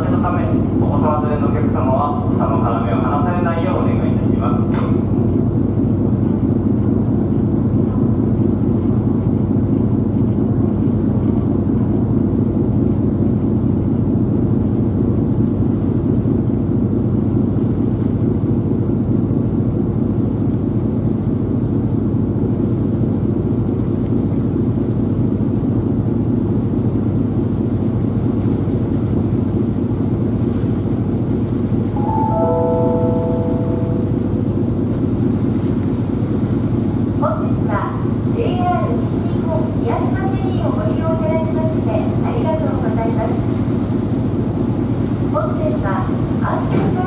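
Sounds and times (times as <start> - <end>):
ferry engine droning: 31.1 - 47.0.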